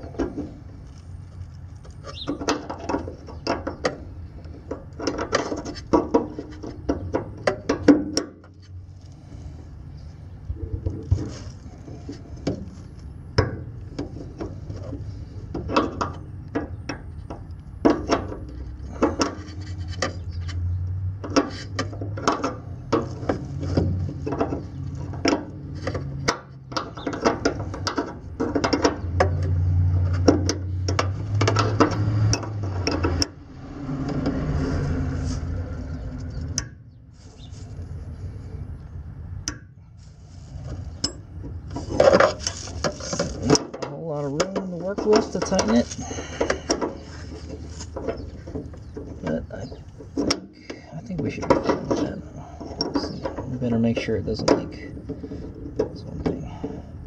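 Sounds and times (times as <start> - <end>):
low rumble: 27.6 - 43.4.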